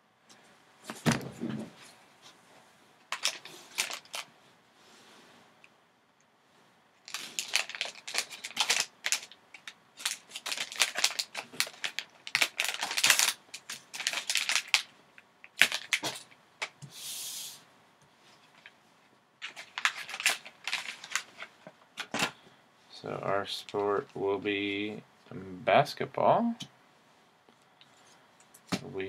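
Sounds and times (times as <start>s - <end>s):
foil pouch crinkling: 3.1s - 4.3s, 7.0s - 16.4s, 19.4s - 22.3s
short smooth hiss: 16.8s - 17.7s.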